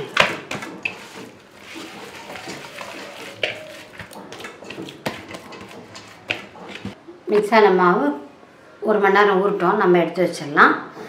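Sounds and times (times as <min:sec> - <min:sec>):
dough squishing and slapping: 0:00.0 - 0:07.0.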